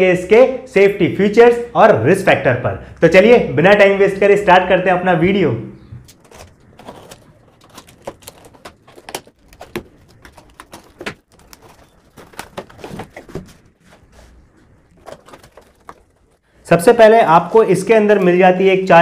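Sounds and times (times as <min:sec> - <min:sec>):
cardboard flaps tearing: 0:06.1 - 0:16.3.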